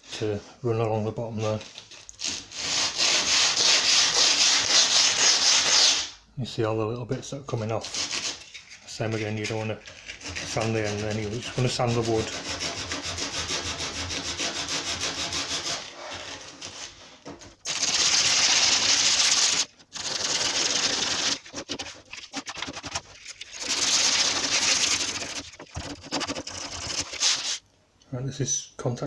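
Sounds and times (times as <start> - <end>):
hand-sanding chipboard edge: 2.5 - 6.1, 10.0 - 15.9, 17.7 - 23.0, 23.6 - 27.6.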